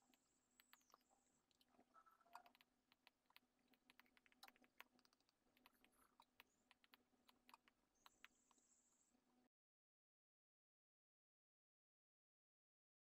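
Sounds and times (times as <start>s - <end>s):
faint steady hum: 0.0s - 9.5s.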